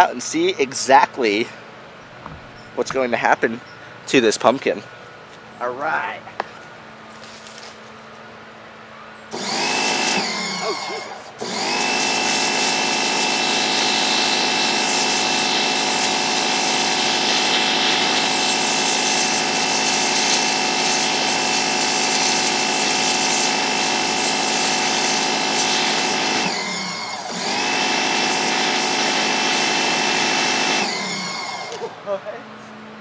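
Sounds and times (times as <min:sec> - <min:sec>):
pressure washer jet hissing: 0:09.3 - 0:31.9
pressure washer whine: 0:09.3 - 0:32.0.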